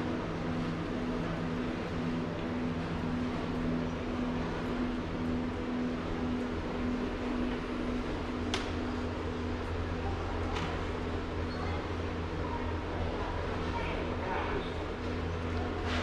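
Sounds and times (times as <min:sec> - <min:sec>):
ventilation hum: 0:00.0 - 0:16.0.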